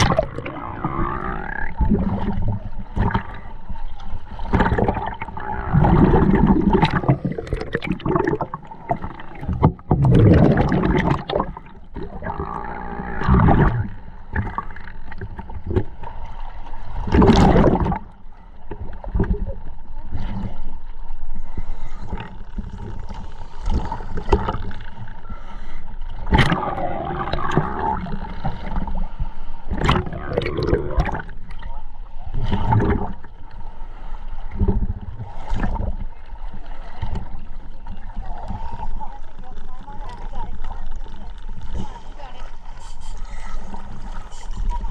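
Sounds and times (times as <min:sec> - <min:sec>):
bubbles gurgling underwater: 0:00.0 - 0:03.6, 0:04.3 - 0:16.0, 0:16.9 - 0:18.2, 0:26.2 - 0:33.6, 0:34.4 - 0:39.0.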